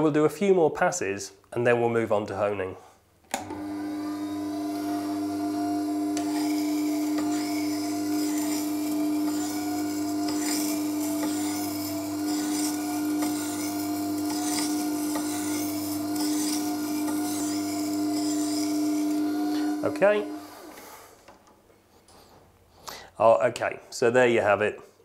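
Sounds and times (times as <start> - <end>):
grinder motor hum: 3.4 - 21.1
blade scraping on grinding stone: 5.8 - 21.0.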